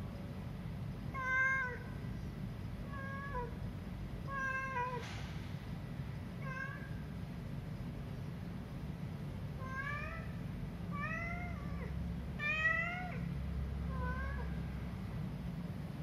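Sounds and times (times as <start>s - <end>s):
steady low hum: 0.0s - 16.0s
cat meowing: 1.1s - 1.9s, 2.9s - 3.6s, 4.3s - 5.0s, 6.4s - 7.0s, 9.6s - 13.3s, 13.9s - 14.6s.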